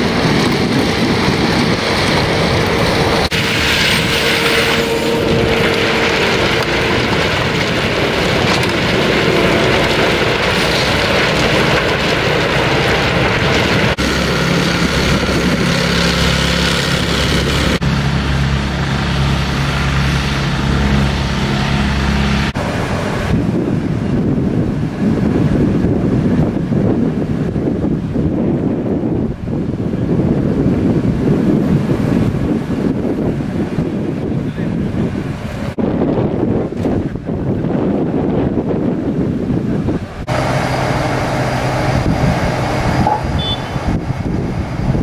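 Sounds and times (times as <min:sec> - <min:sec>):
plate compactor engine drone: 0:00.0 - 0:24.1, 0:40.2 - 0:45.0
track loader engine running: 0:00.0 - 0:29.0, 0:29.6 - 0:45.0
wind on microphone: 0:00.0 - 0:45.0.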